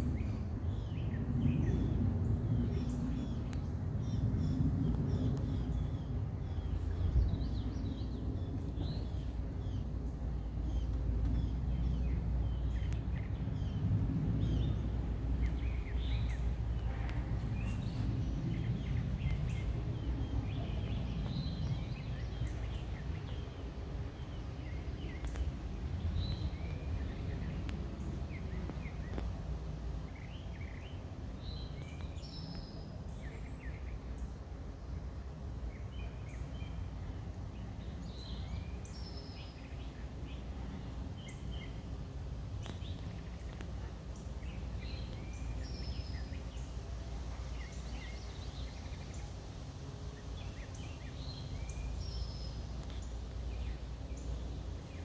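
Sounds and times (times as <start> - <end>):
low background rumble: 0.0 - 55.0
songbirds chirping: 0.0 - 55.0.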